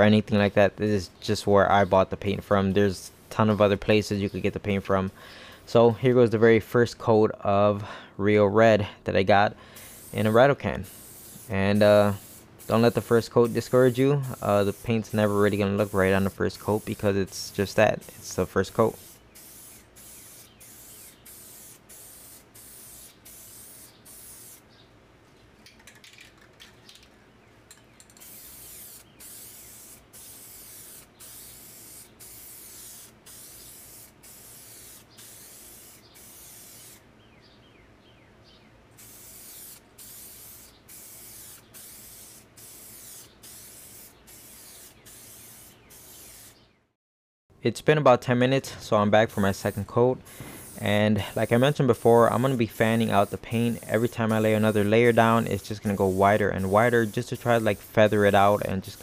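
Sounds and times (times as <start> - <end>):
aerosol spray can hissing: 9.8 - 24.6, 28.1 - 37.0, 39.0 - 46.6, 49.5 - 59.0.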